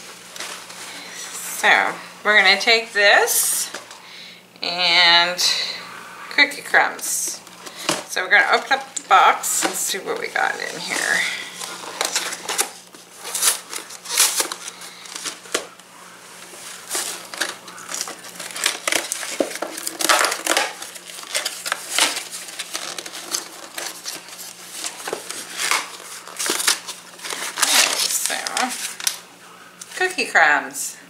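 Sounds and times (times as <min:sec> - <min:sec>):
packaging crinkling: 0:07.3 - 0:30.0.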